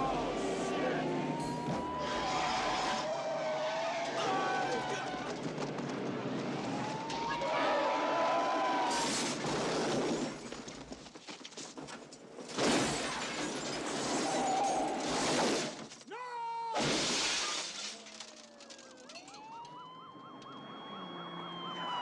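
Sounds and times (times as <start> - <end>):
vehicle crashing: 0.0 - 16.0, 16.8 - 22.0
tires skidding: 0.1 - 10.4
glass shattering: 12.5 - 16.0, 16.8 - 19.7.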